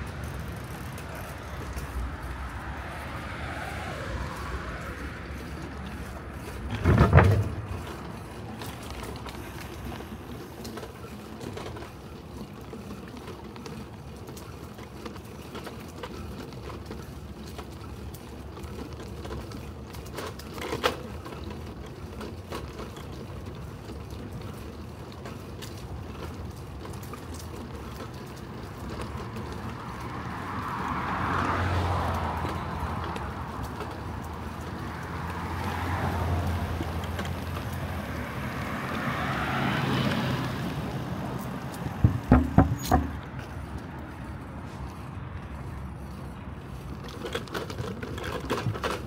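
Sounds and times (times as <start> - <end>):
bicycle rolling on paved path: 0.0 - 49.0
cars passing: 0.0 - 49.0
bike rattling knocks: 6.0 - 10.2, 41.8 - 43.5.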